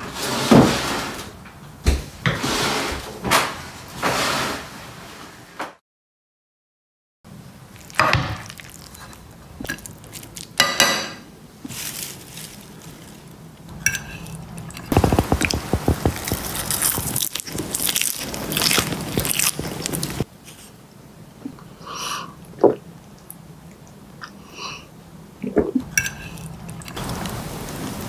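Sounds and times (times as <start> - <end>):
crunching of tossed greens: 7.8 - 10.6, 11.6 - 20.6
utensils scraping and clinking dishes: 13.7 - 15.3, 25.9 - 27.0.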